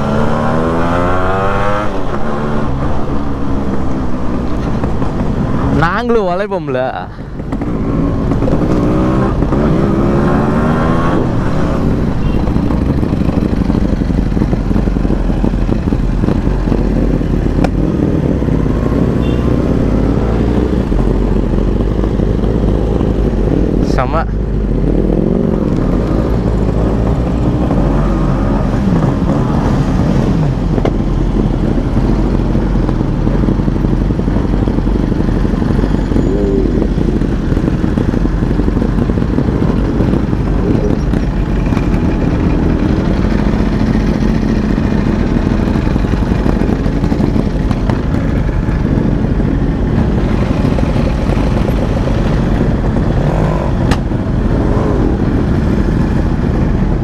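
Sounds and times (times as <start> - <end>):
two-stroke motorcycle engine: 0.0 - 57.0
motorcycles idling: 11.2 - 19.8, 20.6 - 28.0, 28.6 - 57.0.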